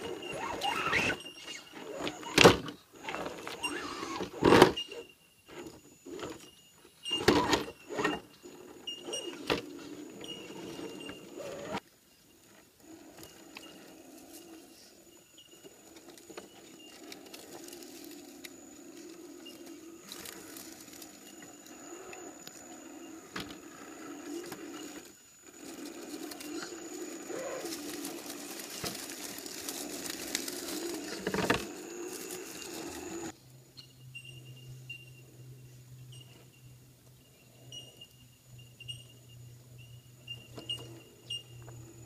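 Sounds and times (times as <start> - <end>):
rc truck motor whining: 0.0 - 5.0, 15.6 - 33.4.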